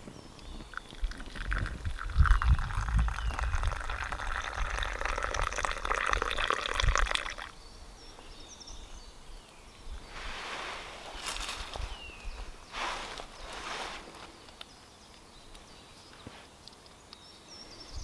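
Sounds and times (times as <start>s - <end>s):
coffee pouring into cup: 0.6s - 7.5s.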